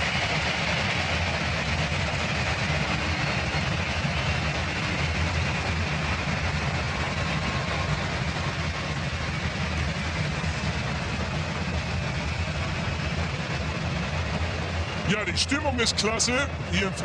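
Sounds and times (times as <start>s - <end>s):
stadium crowd din: 10.7s - 17.0s.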